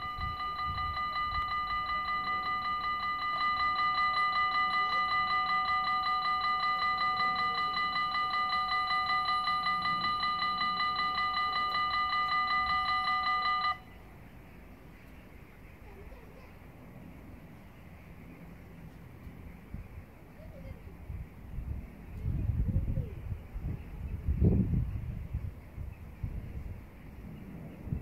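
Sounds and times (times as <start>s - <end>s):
level-crossing warning bells ringing: 0.0s - 14.0s.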